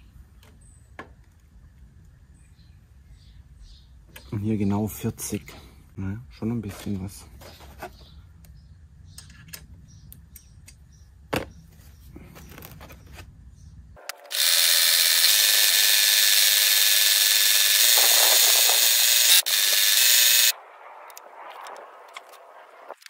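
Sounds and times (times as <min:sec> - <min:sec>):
reel grinding against blade: 0:14.2 - 0:20.5.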